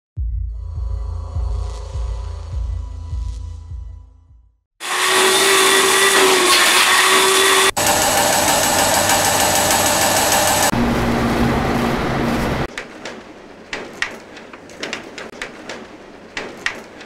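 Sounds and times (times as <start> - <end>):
music: 0.2 - 4.7
factory machinery whirring: 4.8 - 17.0.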